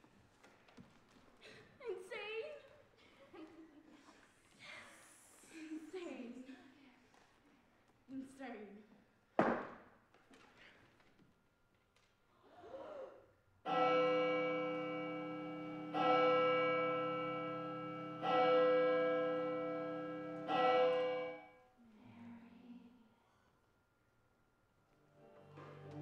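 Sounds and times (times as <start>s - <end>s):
bell tolling: 13.7s - 21.5s.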